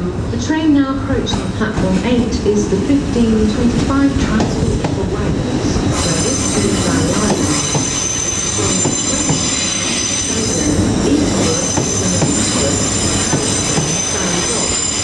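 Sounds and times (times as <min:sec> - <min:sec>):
train wheels squealing: 0:05.8 - 0:15.0.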